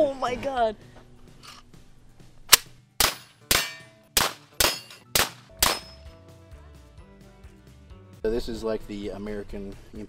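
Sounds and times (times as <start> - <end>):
rifle shots: 2.5 - 6.0.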